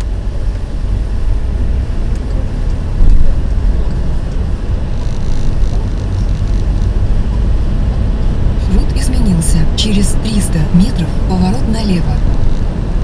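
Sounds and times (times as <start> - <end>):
car engine and road noise: 0.0 - 13.0
car bump: 3.0 - 3.5.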